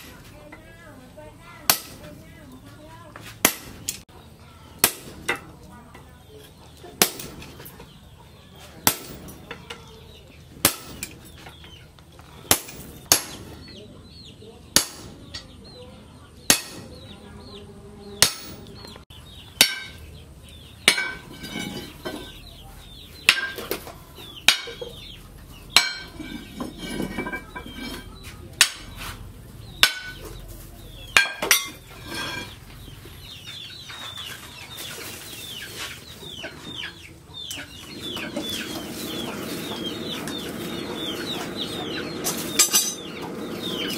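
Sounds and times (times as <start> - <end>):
sledgehammer striking hot metal: 1.7 - 2.0, 3.4 - 4.0, 4.8 - 5.4, 7.0 - 7.5, 8.8 - 9.5, 10.6 - 11.2, 12.5 - 13.5, 14.8 - 15.2, 16.5 - 16.9, 18.2 - 18.6, 19.6 - 20.0, 20.8 - 22.3, 25.7 - 28.9, 29.8 - 30.2, 31.2 - 32.6.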